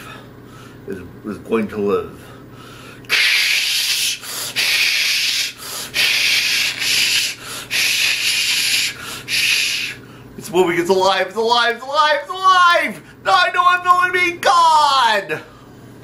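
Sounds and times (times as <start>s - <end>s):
harsh hissing rasping noise: 3.1s - 10.0s.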